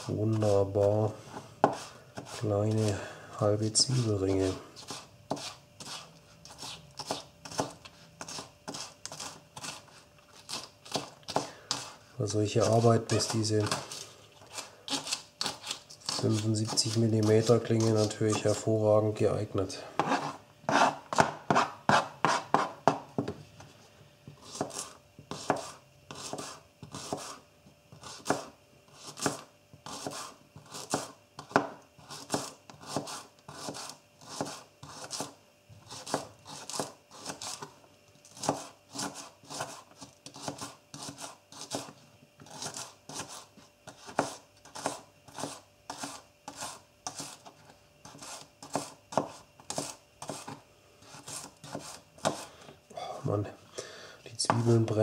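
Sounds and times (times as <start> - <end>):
knife chopping on cutting board: 1.6 - 3.0, 4.8 - 9.8, 10.4 - 12.0, 20.0 - 23.3, 24.4 - 27.4, 28.0 - 37.7, 38.4 - 47.4, 48.0 - 52.4, 54.4 - 54.9.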